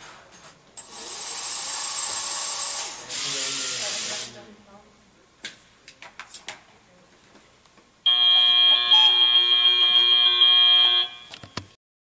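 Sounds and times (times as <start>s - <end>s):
loud harsh buzzer: 8.1s - 11.4s.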